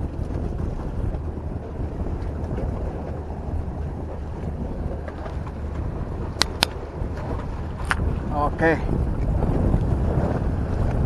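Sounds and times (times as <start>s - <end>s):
wind buffeting microphone: 0.0s - 11.0s
sharp click: 6.4s - 6.8s.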